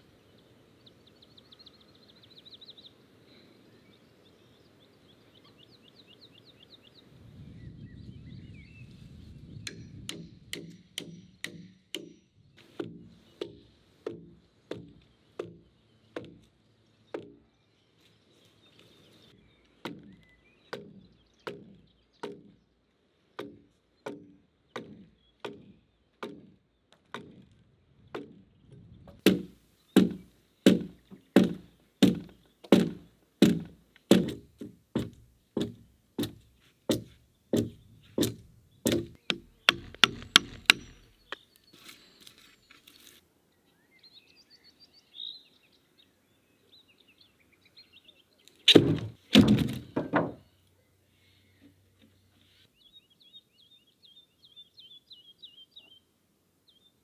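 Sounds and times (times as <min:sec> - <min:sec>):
heavy wooden thuds: 0:29.1 - 0:41.4, 0:48.7 - 0:50.5
axe chopping into a log: 0:29.2 - 0:41.3, 0:48.7 - 0:50.4.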